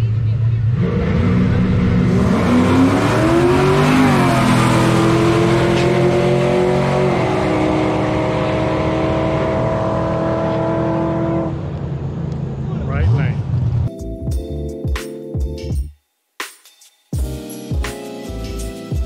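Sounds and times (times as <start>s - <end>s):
drag racing cars accelerating: 0.0s - 13.9s.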